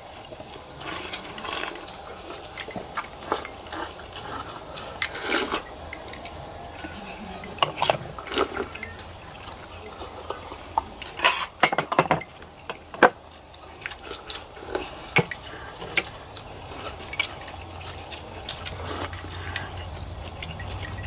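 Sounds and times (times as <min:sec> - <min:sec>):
slurping noodles: 0:00.7 - 0:06.0, 0:13.6 - 0:20.7
spoons and chopsticks clinking bowls: 0:00.8 - 0:21.0.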